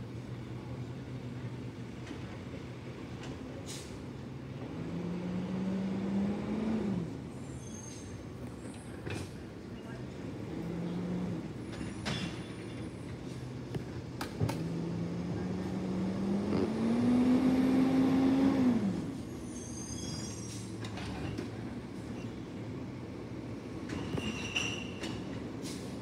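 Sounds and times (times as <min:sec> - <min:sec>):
distant truck engine revving: 0:04.5 - 0:07.4, 0:10.1 - 0:20.8
faint high squeaks: 0:07.4 - 0:09.0, 0:19.3 - 0:22.4, 0:23.9 - 0:25.2.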